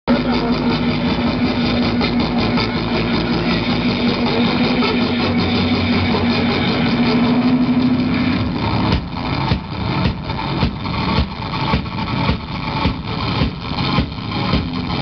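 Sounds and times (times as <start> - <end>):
electric guitar droning note: 0.1 - 11.6.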